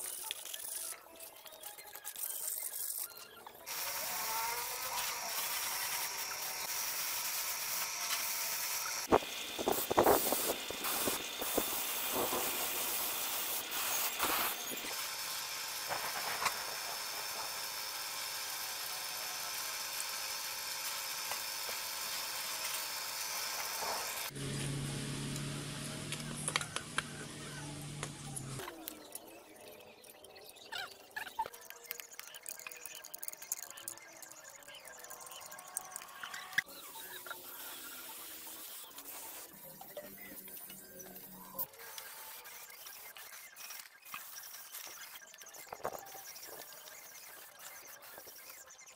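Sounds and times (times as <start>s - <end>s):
small power tool hissing: 3.6s - 26.5s, 35.3s - 48.8s.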